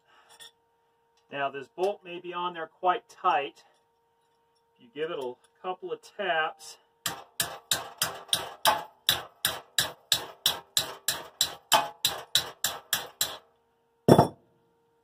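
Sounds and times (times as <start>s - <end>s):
heavy thump: 14.1s - 14.4s.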